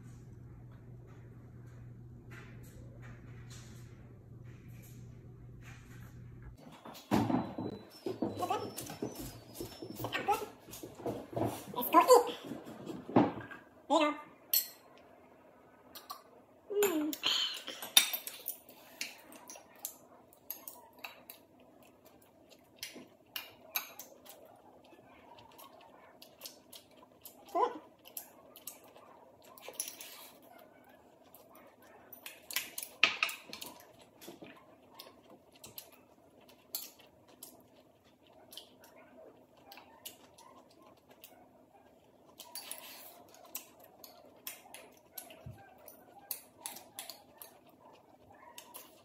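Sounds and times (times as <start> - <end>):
faint steady hum: 0.0 - 49.0
chopsticks clinking on porcelain bowls: 14.5 - 14.9, 16.8 - 21.5, 28.0 - 30.4.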